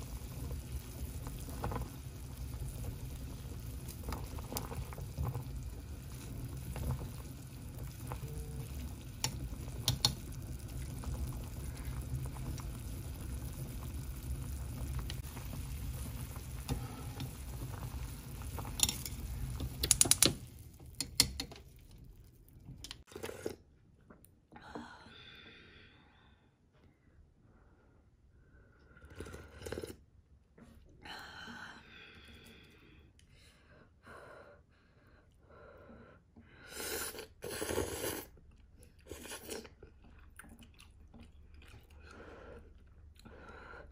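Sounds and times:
noodles boiling in a pot: 0.0 - 23.5
chopsticks clicking against pot: 9.2 - 10.2, 18.7 - 20.4, 21.0 - 21.7.

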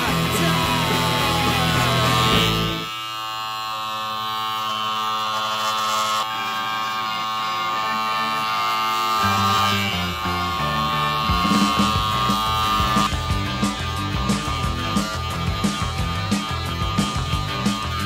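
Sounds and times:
rock music: 0.0 - 2.9, 9.4 - 18.0
electric clipper buzzing: 0.0 - 18.0.

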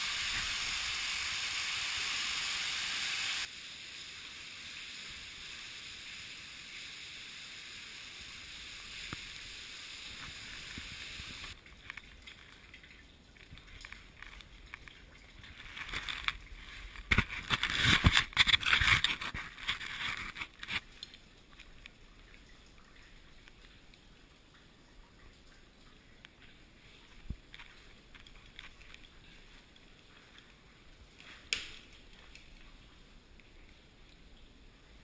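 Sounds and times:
water rushing in cave: 0.0 - 17.8.

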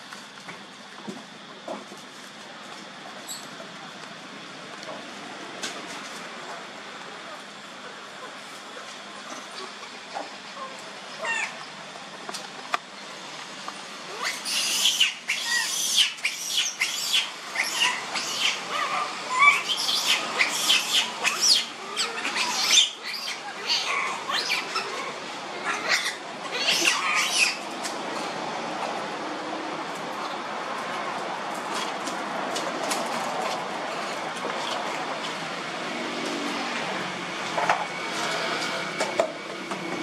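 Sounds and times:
monkeys squealing: 10.2 - 11.7, 14.1 - 27.6.

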